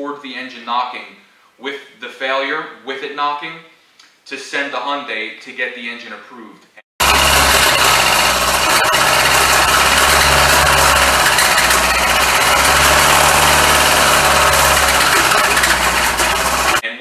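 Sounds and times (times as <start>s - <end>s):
engine idling with loud knock: 7.0s - 16.8s.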